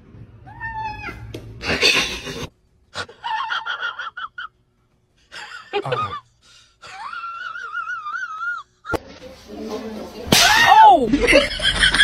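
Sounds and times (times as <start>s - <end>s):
cat meowing: 0.4s - 1.3s.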